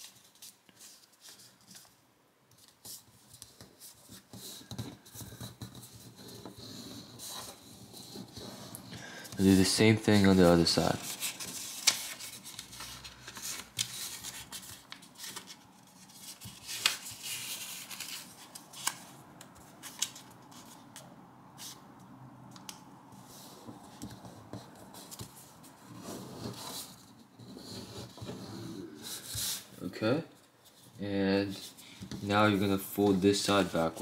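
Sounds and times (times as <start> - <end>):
paper rustling and rubbing: 0.0 - 21.0, 23.2 - 29.7
paper crinkles: 10.2 - 20.7.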